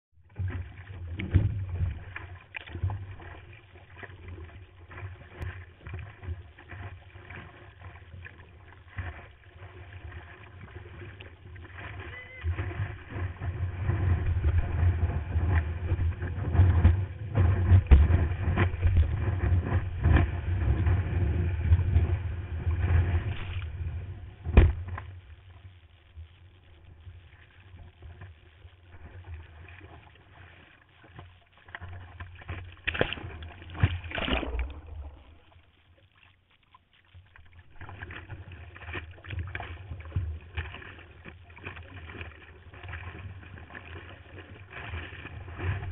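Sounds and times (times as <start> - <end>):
sea water splashing on camera: 0.2 - 45.9
knocks and buffeting: 12.6 - 22.2.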